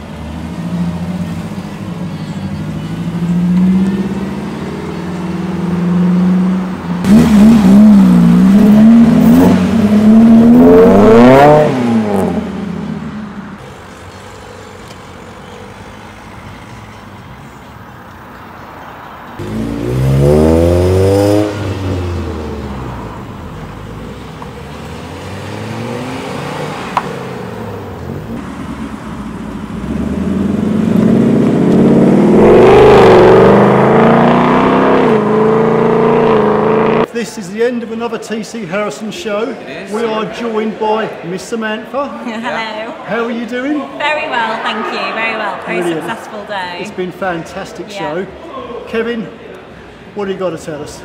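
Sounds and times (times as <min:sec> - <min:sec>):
car engines revving: 0:00.0 - 0:37.2
cars driving past: 0:00.0 - 0:37.4, 0:38.5 - 0:51.0.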